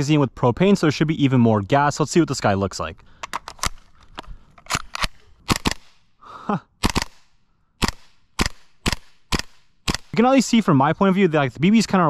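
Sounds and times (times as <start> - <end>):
airsoft rifle shots: 5.0 - 6.0, 6.8 - 10.2.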